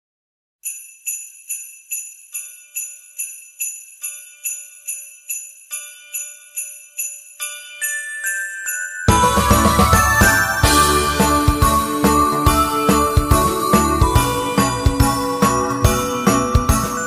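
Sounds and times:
jingle bells shaken: 0:00.6 - 0:17.0
ringing bell notes: 0:00.7 - 0:17.0.

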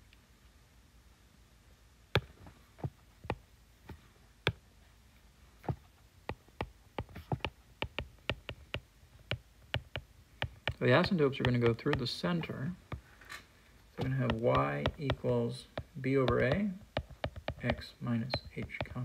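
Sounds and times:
stylus tapping on glass screen: 0:06.3 - 0:13.0, 0:14.0 - 0:19.0.

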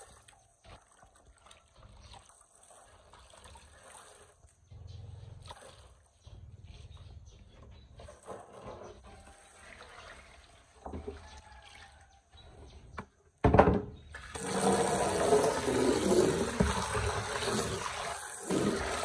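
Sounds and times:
water pouring and splashing: 0:00.0 - 0:12.7, 0:14.1 - 0:19.0.

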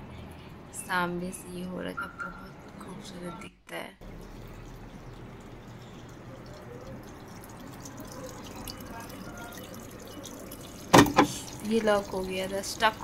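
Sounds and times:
washing machine filling with water: 0:04.0 - 0:13.0.

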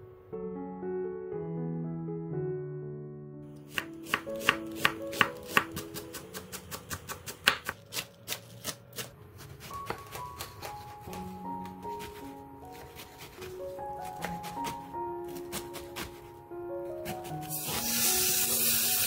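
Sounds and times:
soft piano music: 0:00.0 - 0:08.3, 0:09.4 - 0:19.0
knife chopping on wooden board: 0:03.7 - 0:17.9.

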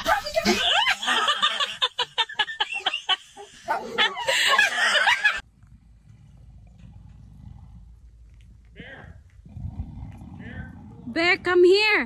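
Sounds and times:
faint low rumble: 0:05.4 - 0:12.0.

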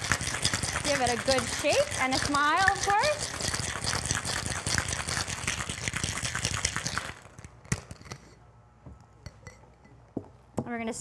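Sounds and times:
ice rattling in cocktail shaker: 0:00.0 - 0:08.2.

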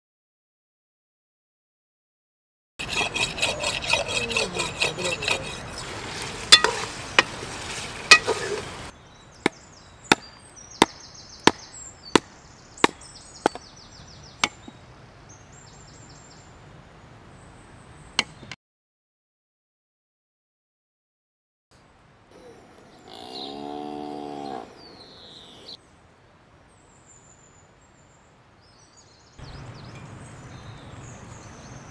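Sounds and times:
knife chopping: 0:10.1 - 0:11.6, 0:12.2 - 0:13.6, 0:14.4 - 0:14.6.

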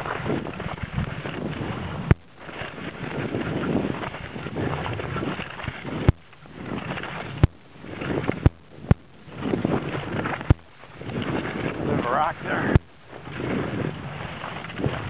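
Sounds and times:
skis hissing over snow: 0:11.2 - 0:15.0.

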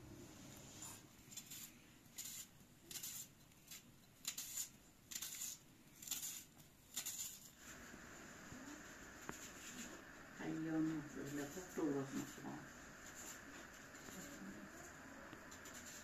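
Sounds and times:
knife slicing through onion: 0:00.8 - 0:07.6, 0:15.4 - 0:16.0.

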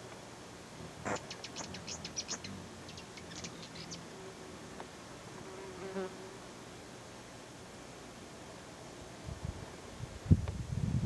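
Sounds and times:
hummingbird wings humming: 0:00.0 - 0:09.2
hummingbird chips: 0:01.0 - 0:04.1.

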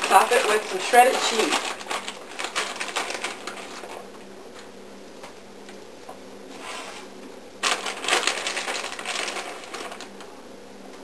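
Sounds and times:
plastic bag crinkling: 0:00.0 - 0:04.1, 0:07.6 - 0:10.2.

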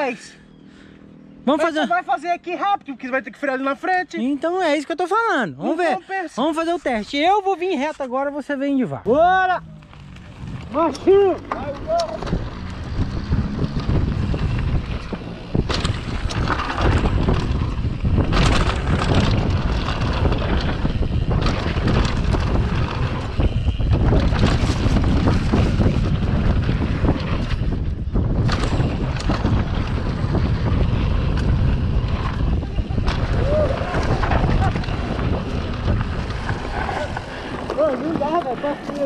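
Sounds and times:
bike tyres rumbling over ground: 0:09.1 - 0:39.0
wind buffeting microphone: 0:09.1 - 0:39.0
bike knocking over bumps: 0:10.4 - 0:39.0.

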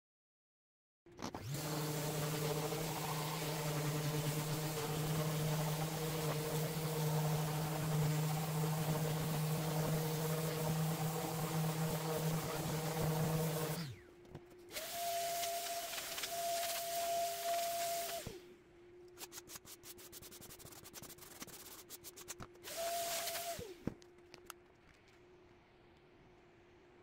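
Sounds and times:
random orbit sander running: 0:01.4 - 0:14.0, 0:14.7 - 0:18.4, 0:22.6 - 0:23.7
vacuum hose sucking dust: 0:01.4 - 0:14.0, 0:14.7 - 0:18.4, 0:22.6 - 0:23.8.

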